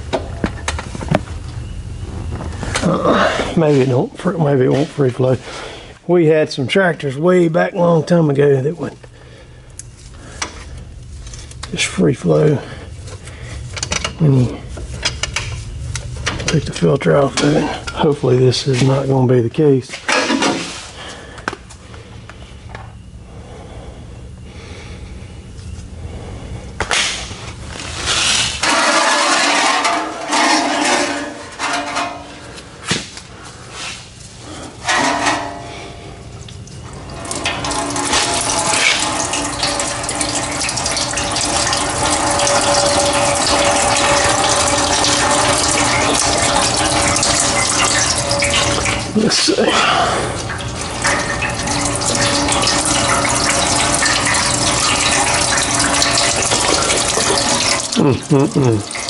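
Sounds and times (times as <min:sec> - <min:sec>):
diesel fuel pouring: 0:00.0 - 0:22.2, 0:27.2 - 0:32.8, 0:33.5 - 0:59.0
knocks and clatter of tools: 0:28.6 - 0:33.1, 0:34.8 - 0:35.7.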